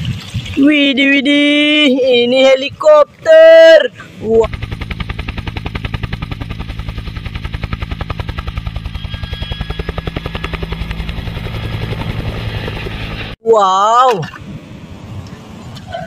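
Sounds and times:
helicopter rotor chopping: 4.1s - 13.4s
low engine hum: 4.1s - 13.4s.

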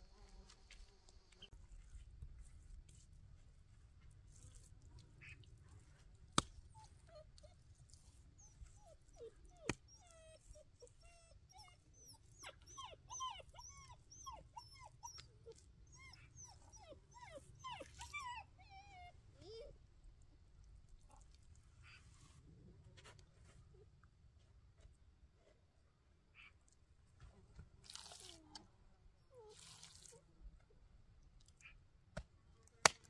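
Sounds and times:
dog whimpering and yelping: 6.7s - 19.7s.

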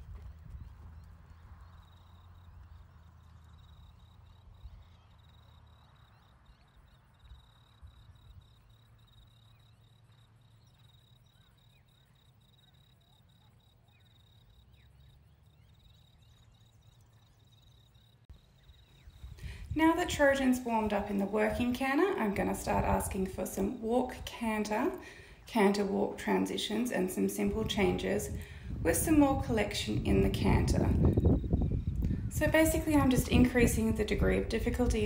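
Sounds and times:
high-pitched insect trill: 1.7s - 19.4s.

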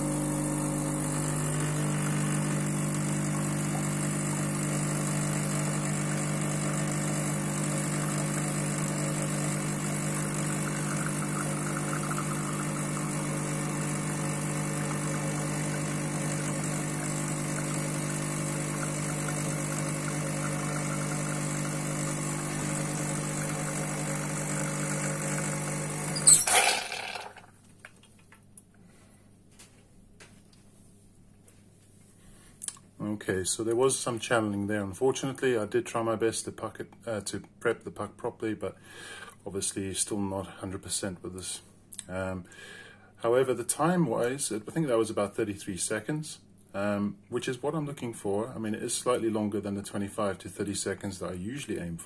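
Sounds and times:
espresso machine pump humming: 0.0s - 27.4s.

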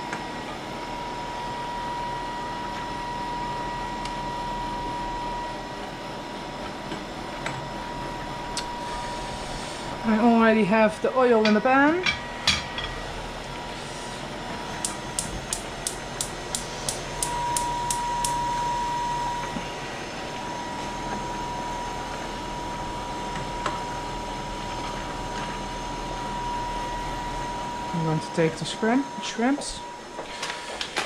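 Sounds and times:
pot of water boiling: 0.0s - 31.0s
gas hob igniter clicking: 14.7s - 18.6s.

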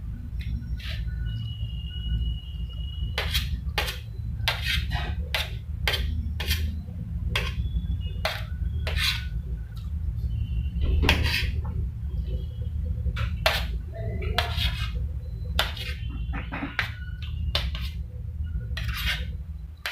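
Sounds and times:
steady low hum: 0.0s - 19.9s
spoon scraping a steel plate: 0.7s - 1.2s, 3.2s - 6.8s, 7.4s - 7.6s, 8.2s - 9.3s, 11.0s - 11.6s, 13.2s - 18.0s, 18.7s - 19.9s.

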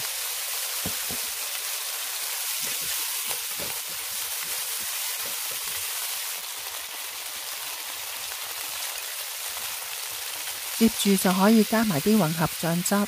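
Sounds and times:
chicken wings sizzling in oil: 0.0s - 13.0s
spatula stirring in wok: 2.4s - 6.4s.

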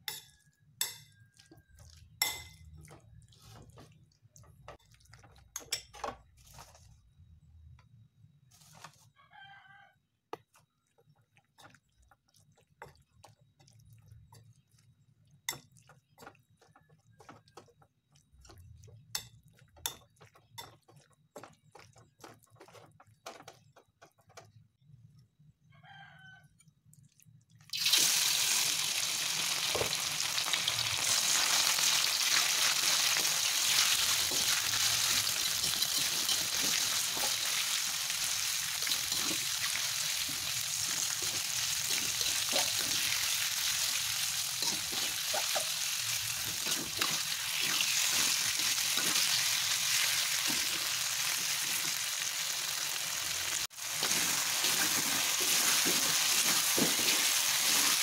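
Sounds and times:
rooster crowing faintly: 8.9s - 10.1s, 25.6s - 26.7s
meat sizzling in hot oil: 27.7s - 58.0s
spoon scraping a bowl: 33.6s - 37.4s, 38.8s - 43.2s, 44.6s - 45.7s, 46.4s - 49.4s.

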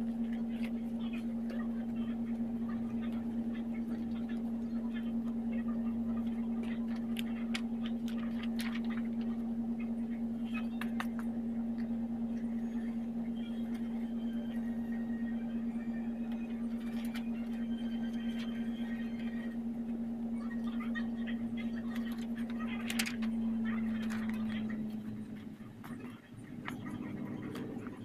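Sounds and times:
steady low hum: 0.0s - 28.0s
notebook pages rustling: 6.6s - 9.4s.

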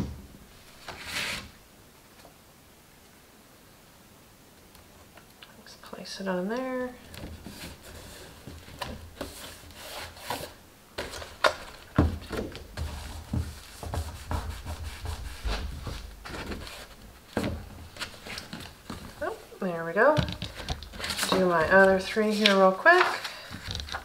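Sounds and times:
hands rubbing cardstock: 12.8s - 16.9s.

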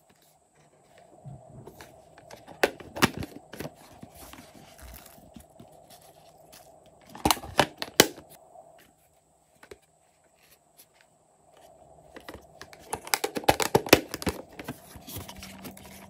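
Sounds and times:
plastic case clacking: 1.6s - 5.7s, 7.1s - 8.2s, 12.1s - 16.0s.

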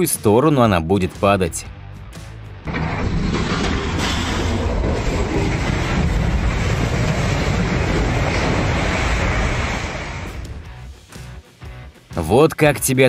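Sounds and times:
cooling tower collapsing: 2.6s - 10.7s.

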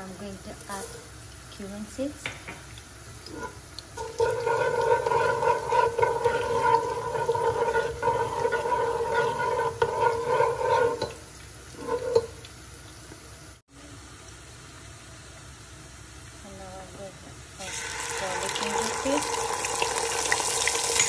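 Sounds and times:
seeds crackling in hot oil: 0.0s - 21.0s
steady hum: 2.8s - 15.9s.

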